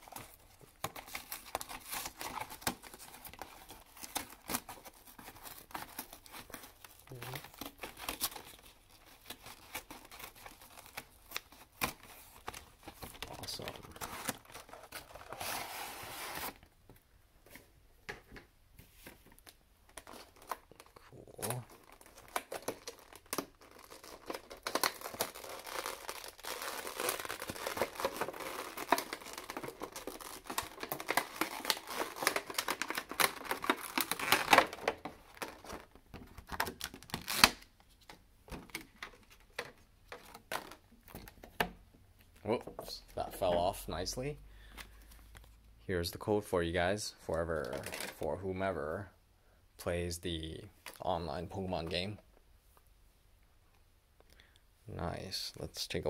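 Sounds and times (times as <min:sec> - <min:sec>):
plastic wrapping crinkling and tearing: 0:00.0 - 0:16.6, 0:19.3 - 0:41.4, 0:47.6 - 0:48.3.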